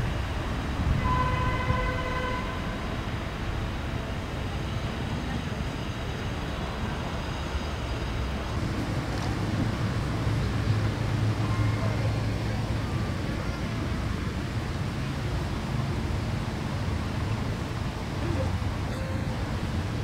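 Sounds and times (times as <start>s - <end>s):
distant city traffic rumble: 0.0s - 20.0s
horn tone: 1.0s - 2.8s.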